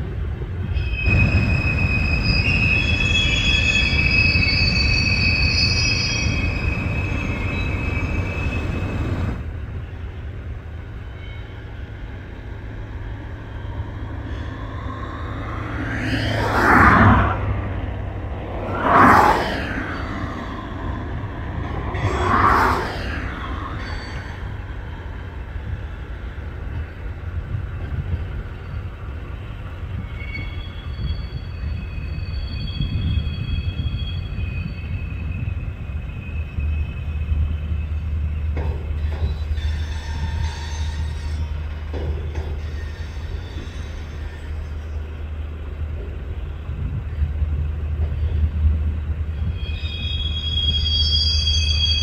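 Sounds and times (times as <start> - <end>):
distant turboprop engines rumbling: 11.7 - 30.0.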